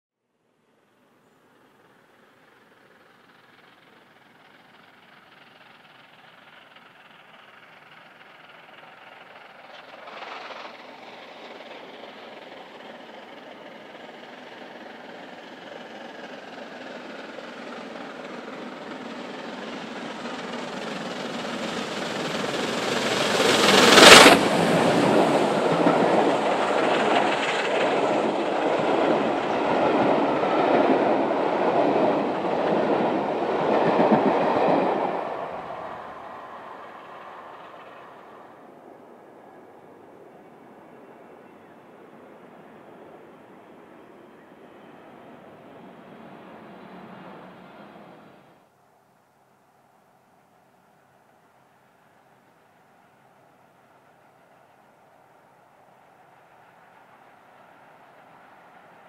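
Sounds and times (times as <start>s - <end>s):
steam locomotive passing: 0.8s - 48.7s, 49.8s - 59.0s
coaches rumbling past: 2.6s - 48.6s.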